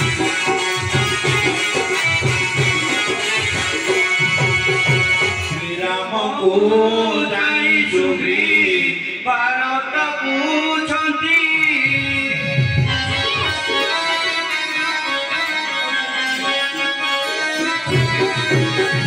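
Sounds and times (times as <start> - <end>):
held keyboard notes: 0.0 - 7.3, 11.6 - 19.0
man singing: 5.4 - 15.6.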